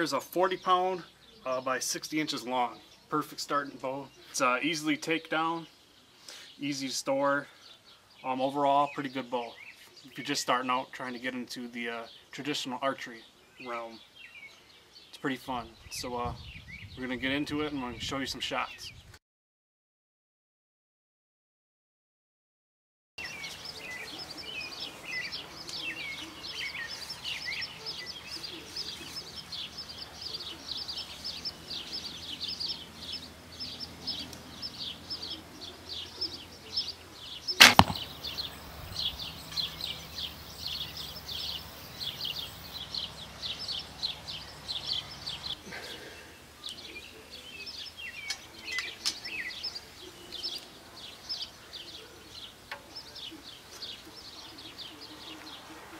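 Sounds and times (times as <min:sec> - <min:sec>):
birds chirping: 0:00.0 - 0:19.1, 0:23.2 - 0:55.9
bowstring snap: 0:37.6 - 0:38.2.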